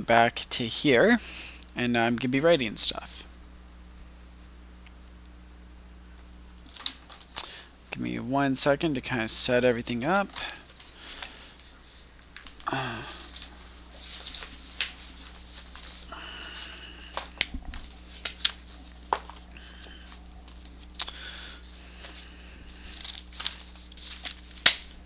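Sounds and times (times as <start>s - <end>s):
low steady hum: 0.0s - 25.0s
pages rustling: 10.1s - 25.0s
paper sliding: 13.1s - 17.2s, 21.6s - 24.7s.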